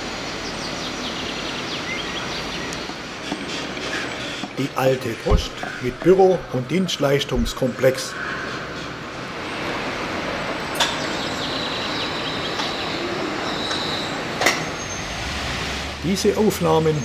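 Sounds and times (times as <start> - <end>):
distant traffic and work hiss: 0.0 - 17.0
sharp knocks: 5.2 - 6.5.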